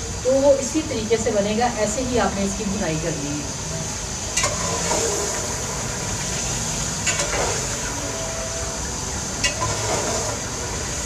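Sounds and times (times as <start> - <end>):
meat sizzling in a pot: 0.0 - 11.0
ladle scraping pot: 9.4 - 10.5.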